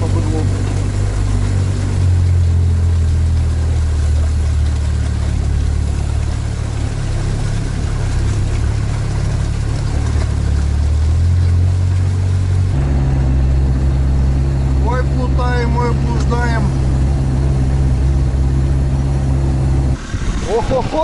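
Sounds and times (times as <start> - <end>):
diesel engine droning: 0.0 - 21.0.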